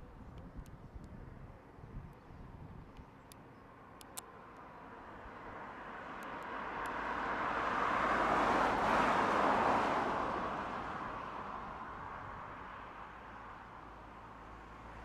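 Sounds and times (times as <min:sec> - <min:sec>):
road vehicle passing by: 0:03.8 - 0:15.0.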